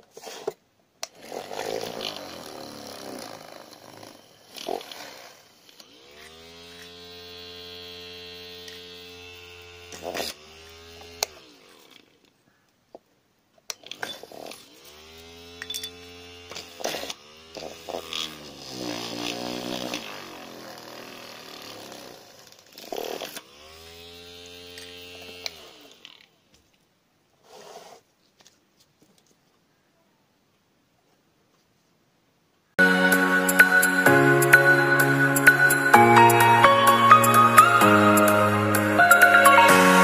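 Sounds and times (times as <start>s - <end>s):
hand drill motor whining: 1.0s - 12.4s, 13.7s - 26.5s.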